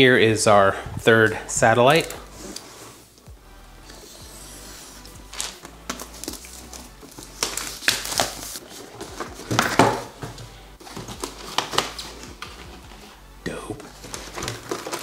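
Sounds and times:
cardboard scraping and rustling: 4.8 - 13.2, 13.9 - 15.0
knocks and crinkles: 5.3 - 13.2, 13.8 - 15.0.

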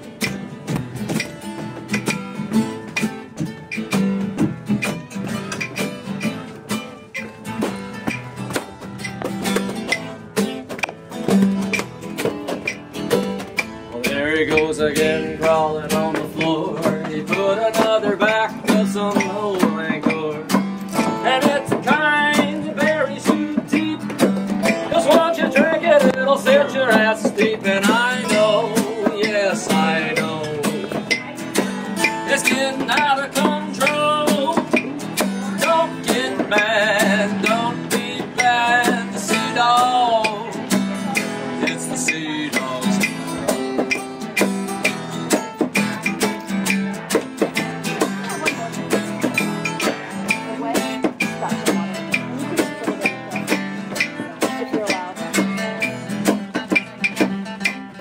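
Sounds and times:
strummed acoustic guitar: 0.0 - 58.0
person singing: 13.6 - 43.9.

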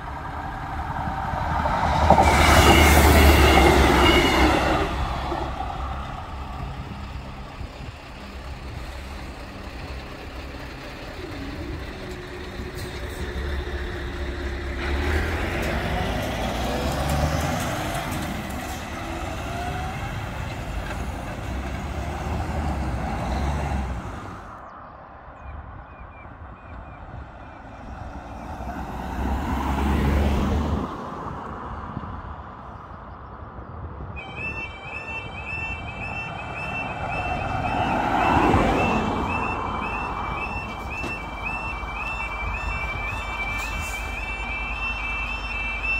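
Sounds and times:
lorry passing by: 0.0 - 24.7, 34.2 - 45.9
cars passing with tyre noise: 0.0 - 45.9.

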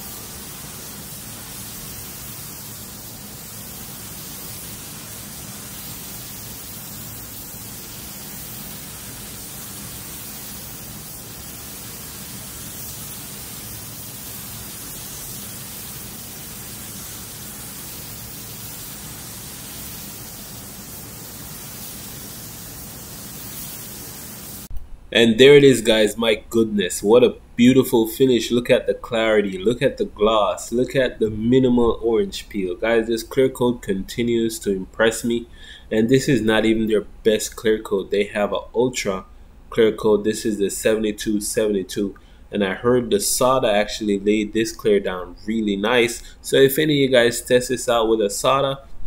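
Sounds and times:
spray gun air hiss: 0.0 - 24.7.

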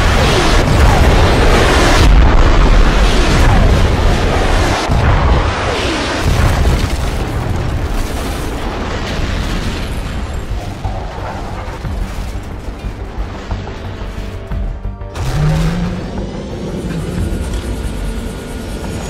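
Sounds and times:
explosion booms and rumbling: 0.0 - 14.2
music: 8.4 - 19.0.

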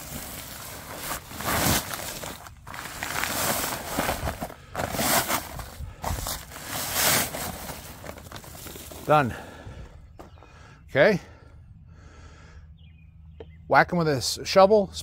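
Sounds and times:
paper sack scraping on gravel: 0.0 - 9.5.

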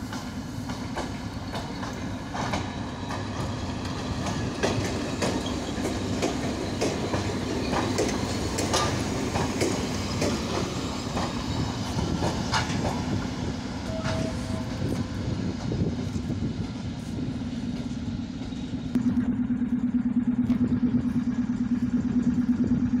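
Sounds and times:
train wheels clacking over rail joints: 0.0 - 18.8
pulsing hum: 13.0 - 23.0
steady low hum: 17.2 - 23.0.

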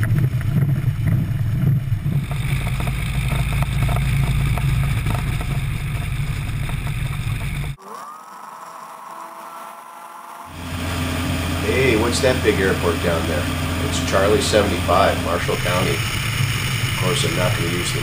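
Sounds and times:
aircraft engine: 0.0 - 7.8, 10.5 - 18.0
wind rumble: 0.0 - 7.8.

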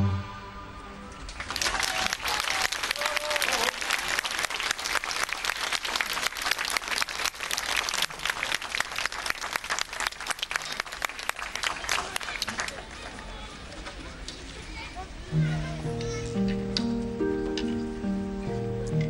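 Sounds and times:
audience applause: 1.3 - 13.8.

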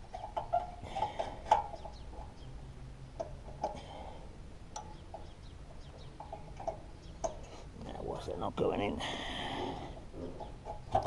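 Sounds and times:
bird calls: 0.0 - 7.7.

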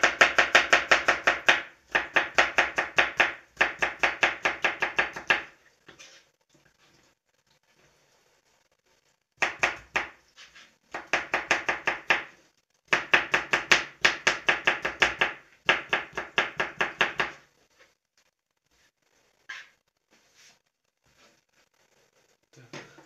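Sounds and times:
knife chopping on plastic cutting board: 0.0 - 5.5, 9.4 - 10.2, 11.0 - 12.3, 12.9 - 17.4.

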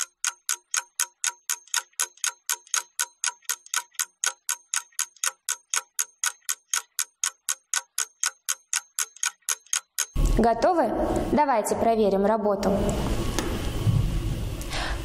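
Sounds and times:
clock ticking: 0.0 - 10.3.

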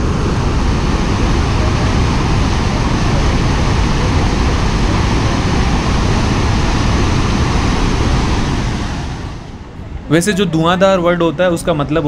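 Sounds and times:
waterfall rushing over rocks: 0.0 - 9.6.

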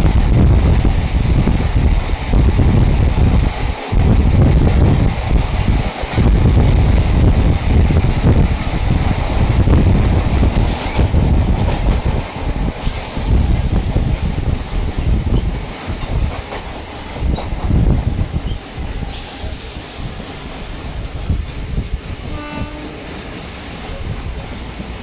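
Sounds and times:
freight train rumbling past: 0.0 - 25.0
train horn blast: 22.2 - 23.1.

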